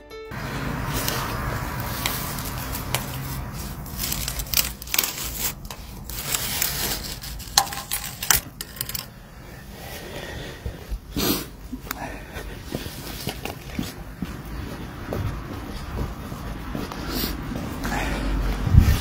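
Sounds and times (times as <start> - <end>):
plastic tube crinkling: 1.0 - 9.2.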